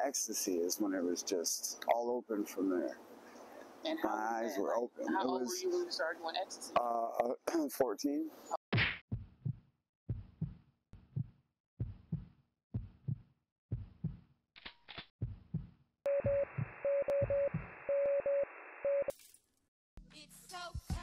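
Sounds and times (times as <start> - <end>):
heartbeat-like double thump: 8.8 - 14.2, 15.2 - 17.7
short beeps: 16.1 - 19.1.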